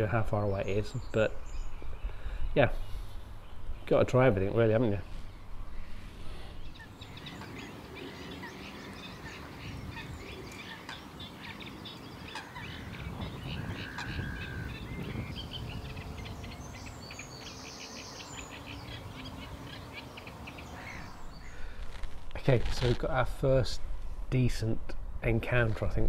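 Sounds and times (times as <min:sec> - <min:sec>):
small birds chirping and trilling: 0:00.0 - 0:22.9
low steady background rumble: 0:00.0 - 0:26.0.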